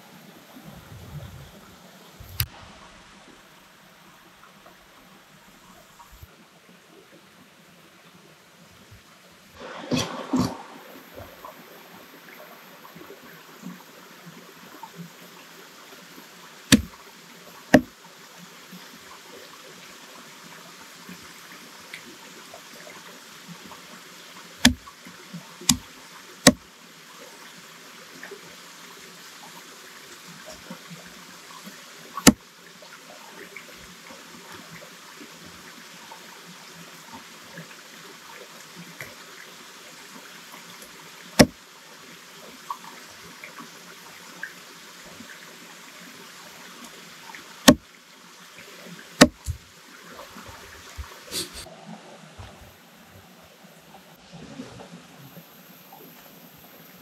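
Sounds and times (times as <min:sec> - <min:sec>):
running water: 0:00.0 - 0:57.0
sharp knocks: 0:16.7 - 0:16.9, 0:17.7 - 0:17.9, 0:24.6 - 0:24.8, 0:49.2 - 0:49.6.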